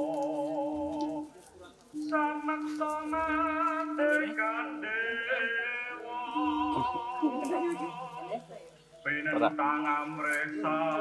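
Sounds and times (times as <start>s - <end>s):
person singing long wavering notes: 6.0s - 8.4s.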